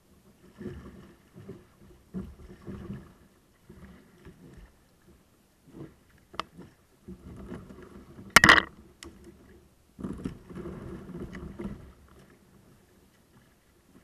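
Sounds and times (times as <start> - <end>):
paddle strokes splashing in water: 0.2 - 14.0.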